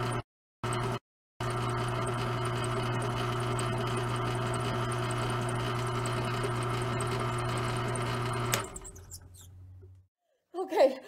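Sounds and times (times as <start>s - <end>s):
small motor humming: 1.4s - 10.0s.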